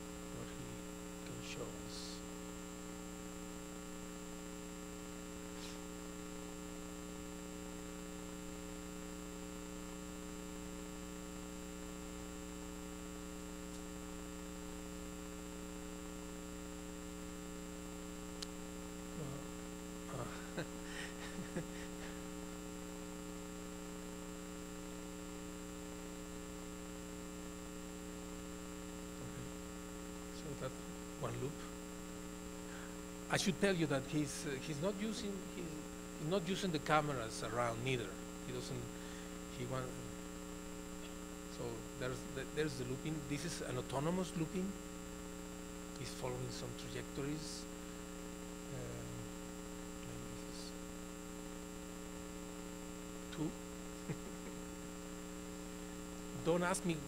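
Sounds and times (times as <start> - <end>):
electrical mains hum: 0.0 - 57.0.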